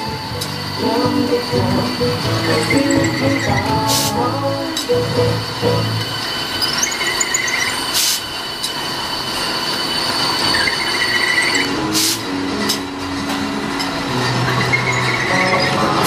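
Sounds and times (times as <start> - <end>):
drilling machine whine: 0.0 - 16.0
metal-on-metal squealing: 0.0 - 16.0.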